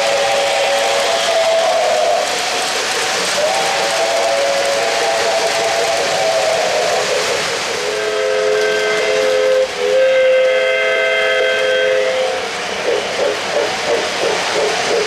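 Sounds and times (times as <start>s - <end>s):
model train steam whistle: 0.0s - 2.5s, 3.3s - 12.6s
model train rolling on track: 0.0s - 15.0s.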